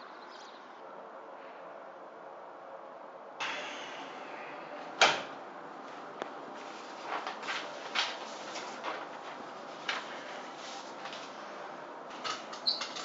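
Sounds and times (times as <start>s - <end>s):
paper sheets rustling: 5.2s - 13.0s.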